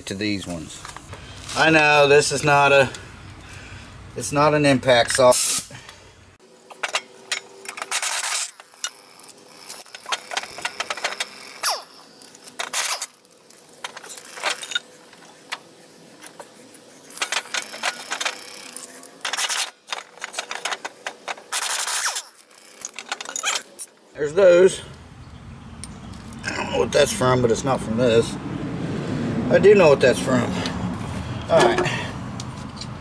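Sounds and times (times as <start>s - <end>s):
pneumatic ratchet whirring: 6.7s - 16.4s, 17.1s - 23.9s.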